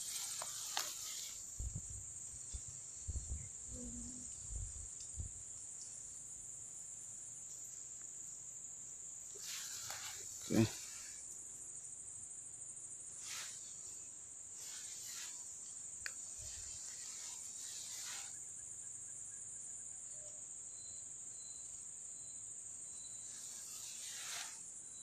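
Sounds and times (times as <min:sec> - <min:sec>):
grass rustling: 0:00.0 - 0:03.3, 0:09.3 - 0:11.2, 0:13.2 - 0:18.5, 0:23.2 - 0:24.7
insect chorus: 0:00.0 - 0:25.0.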